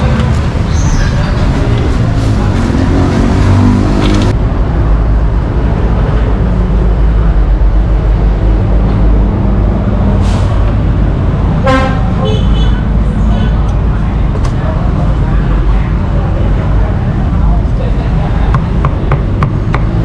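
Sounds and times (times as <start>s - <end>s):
vehicle engine rumbling: 0.0s - 20.0s.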